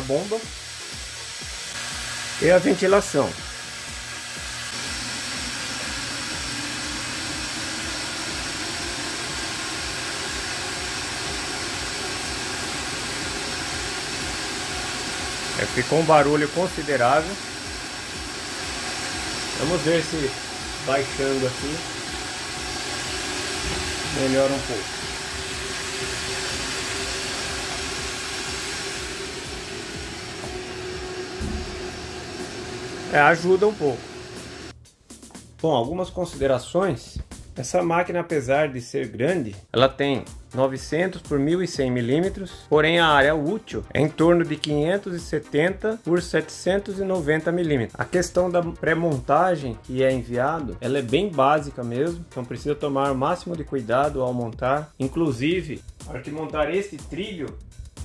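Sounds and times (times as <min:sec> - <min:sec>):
fans whirring: 0:00.0 - 0:34.7
steady hum: 0:00.8 - 0:34.7.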